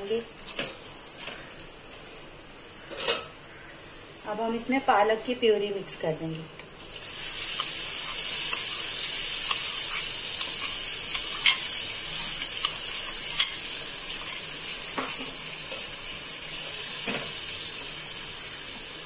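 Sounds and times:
food sizzling in hot oil: 0:00.0 - 0:02.8, 0:06.7 - 0:19.0
oil crackling and popping: 0:00.4 - 0:02.3, 0:06.8 - 0:16.0.

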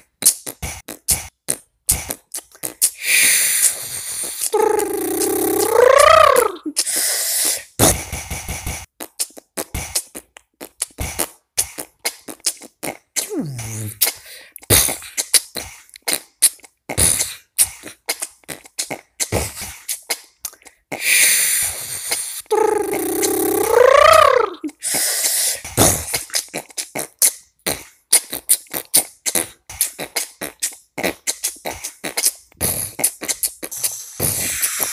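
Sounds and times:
beatboxing: 0:00.0 - 0:34.9
downward-sliding vocal tone: 0:04.6 - 0:06.7, 0:22.5 - 0:24.7.

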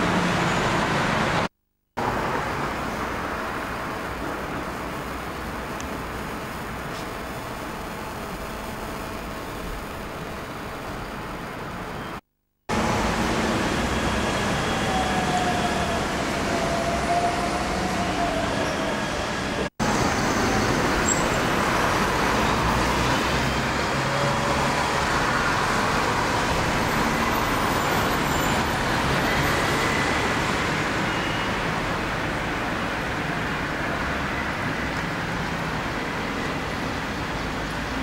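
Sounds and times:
buses passing: 0:00.0 - 0:38.0
road traffic: 0:00.0 - 0:38.0.

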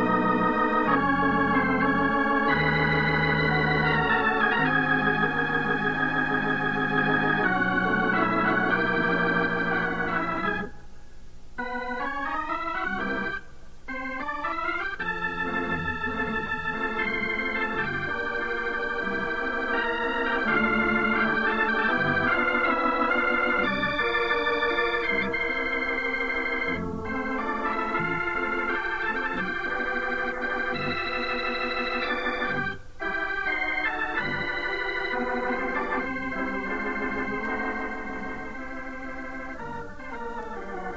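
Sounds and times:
organ music: 0:00.0 - 0:40.9.

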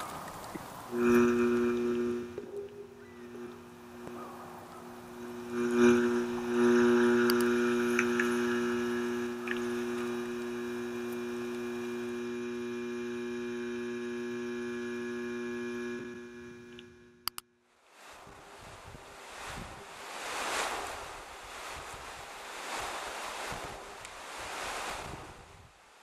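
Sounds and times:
sharp clicks: 0:00.0 - 0:12.0, 0:16.6 - 0:17.5
electrical hum: 0:00.0 - 0:25.8.

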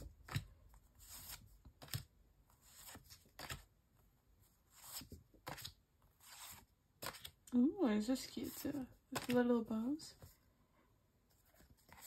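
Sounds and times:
postcards being flipped through: 0:00.0 - 0:03.7, 0:04.7 - 0:07.4, 0:08.2 - 0:09.5, 0:11.3 - 0:12.0.

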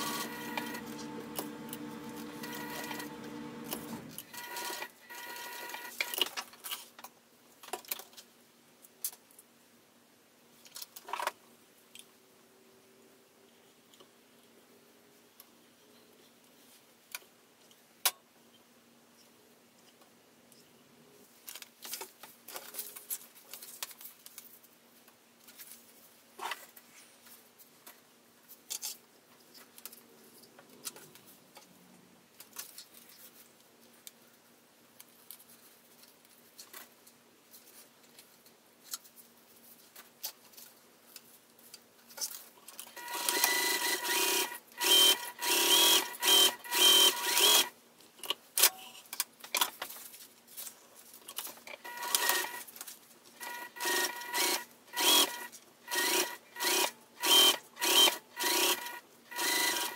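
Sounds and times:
sewing machine stitching: 0:00.0 - 0:06.2, 0:42.9 - 0:47.7, 0:51.8 - 0:52.7, 0:53.4 - 0:59.9.

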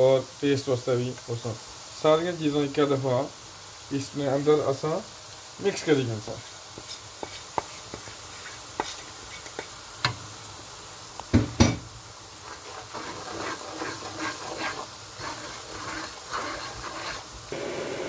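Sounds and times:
onions frying in oil: 0:00.0 - 0:18.0
spatula stirring: 0:05.6 - 0:10.2, 0:12.3 - 0:17.5
spatula knocking on wok: 0:11.3 - 0:11.9.

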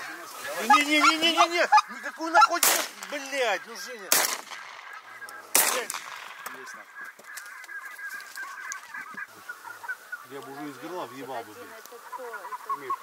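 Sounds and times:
geese honking: 0:00.0 - 0:13.0
shotgun shots: 0:02.6 - 0:03.2, 0:04.0 - 0:06.6.

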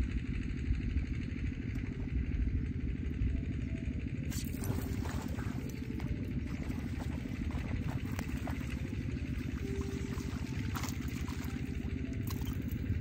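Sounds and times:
low rumble: 0:00.0 - 0:13.0
fish splashing: 0:04.3 - 0:12.9.

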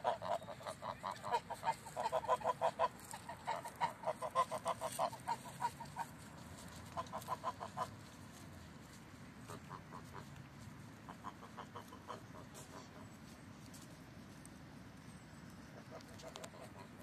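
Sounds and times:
geese honking: 0:00.0 - 0:08.0, 0:09.4 - 0:10.4, 0:11.0 - 0:13.2, 0:15.8 - 0:17.0.

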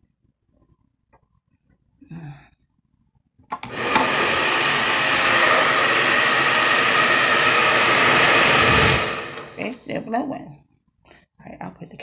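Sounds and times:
small blower whirring: 0:03.6 - 0:09.8.

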